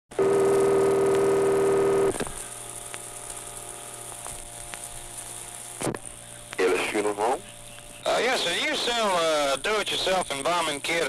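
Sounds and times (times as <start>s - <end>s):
phone line hum: 0.1s - 11.0s.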